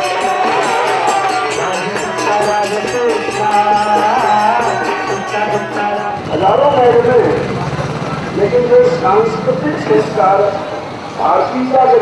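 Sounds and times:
devotional singing: 0.0 - 7.5
jingling percussion beat: 0.0 - 7.6.

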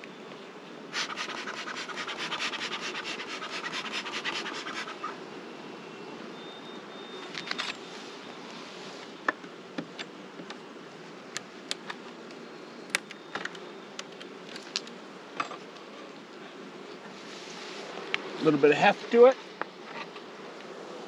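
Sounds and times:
bees buzzing: 0.9 - 5.5.

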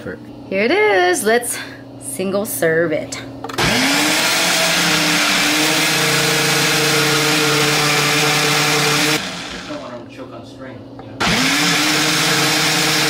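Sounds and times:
blender pureeing: 3.5 - 10.1, 11.2 - 13.0.

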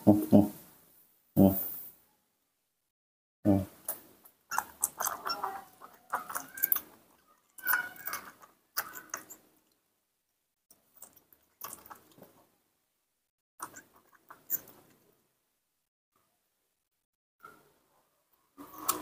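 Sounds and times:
baby monkey squeaking: 4.5 - 6.8.

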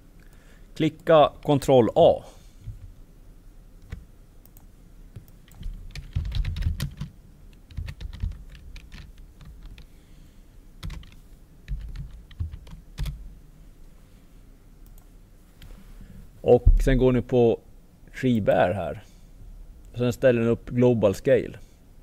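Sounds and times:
typing on computer keyboard: 5.5 - 9.9, 10.8 - 13.2.

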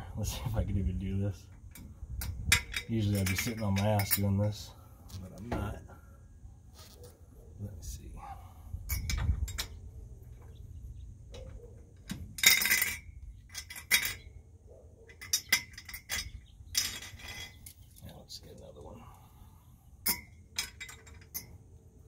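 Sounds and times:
metal clinking of lug nut: 1.5 - 4.6, 8.8 - 9.8, 11.3 - 14.3, 15.0 - 17.8, 20.0 - 21.6.

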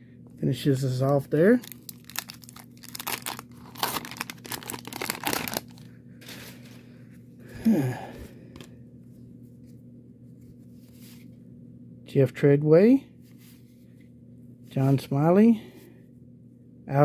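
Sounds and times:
faint steady hum: 0.0 - 17.0
cards rustling: 1.0 - 6.8
wrapper tearing and crinkling: 1.6 - 6.6.

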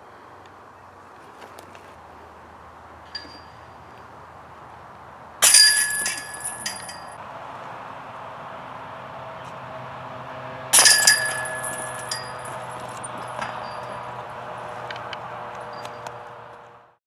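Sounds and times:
faint metallic clink: 3.1 - 3.7, 5.4 - 7.2, 10.8 - 14.2
chains jangling: 5.4 - 7.2, 10.8 - 14.1
disc crashing into metal chains: 5.4 - 7.2, 10.8 - 14.2.

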